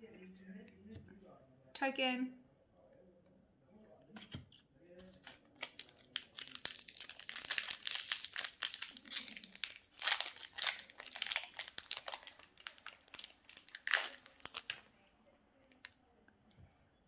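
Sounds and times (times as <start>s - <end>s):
foil wrapper crinkling: 5.1s - 14.8s
foil pack tearing open: 5.2s - 14.8s.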